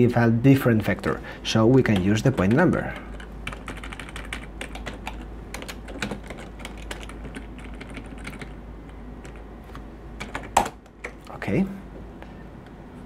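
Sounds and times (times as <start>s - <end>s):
keyboard typing clicks: 1.7s - 11.3s.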